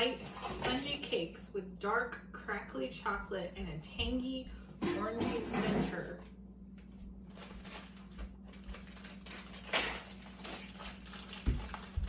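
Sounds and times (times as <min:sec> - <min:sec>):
snack packaging rustling: 0:06.8 - 0:12.0.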